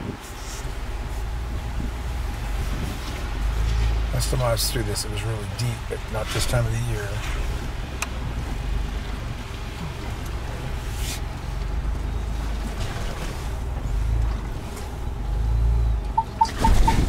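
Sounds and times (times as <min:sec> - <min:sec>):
truck engine and tyres rumbling: 0:00.0 - 0:17.0.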